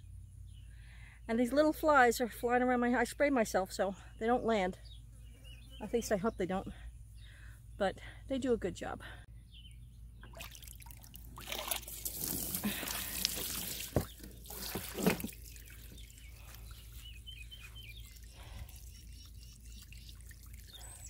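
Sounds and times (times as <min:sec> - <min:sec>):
water splashing into plastic trough: 0:10.3 - 0:16.2.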